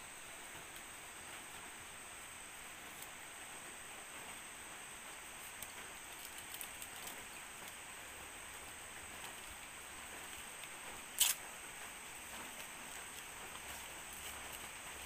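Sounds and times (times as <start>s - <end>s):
background hiss: 0.0s - 15.0s
leaf wrapper crackling: 5.2s - 15.0s.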